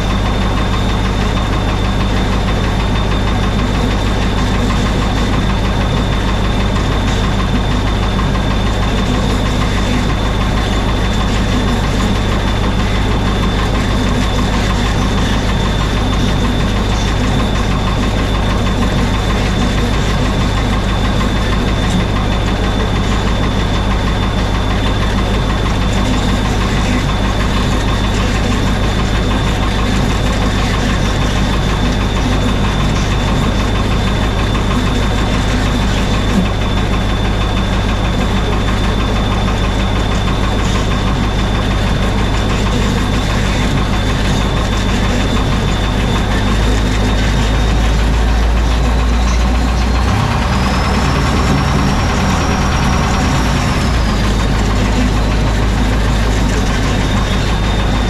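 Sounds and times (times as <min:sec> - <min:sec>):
snowcat engine running: 0:00.0 - 0:58.0
thin high whine: 0:00.0 - 0:58.0.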